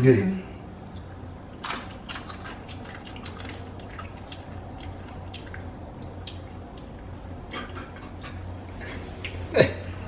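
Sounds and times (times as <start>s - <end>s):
steady low hum: 0.0s - 10.0s
wet mouth clicks and lip smacks: 2.1s - 8.4s.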